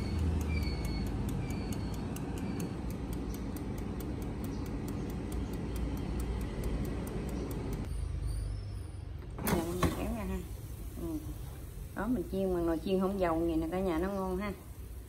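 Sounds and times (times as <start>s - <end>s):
air fryer fan running: 0.0s - 7.9s, 9.3s - 15.0s
dial timer ticking: 0.0s - 7.9s.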